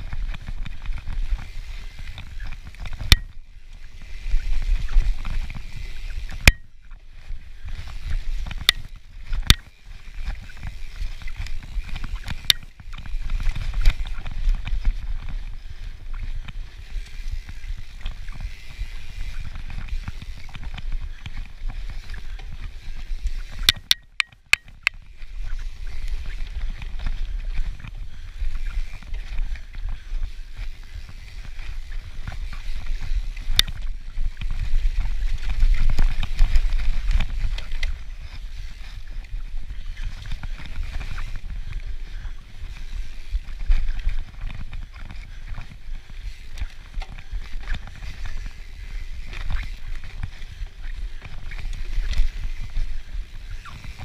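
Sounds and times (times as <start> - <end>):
sharp clicks: 23.6 - 24.9.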